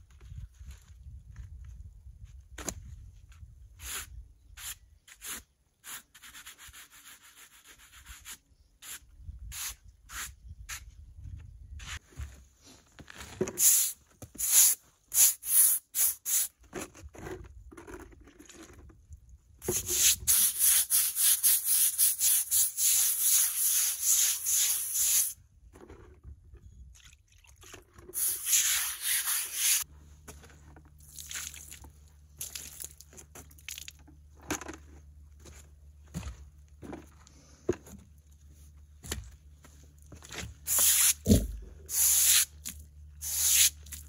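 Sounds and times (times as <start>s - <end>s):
brush scrubbing concrete: 19.7s - 25.3s, 28.2s - 29.9s.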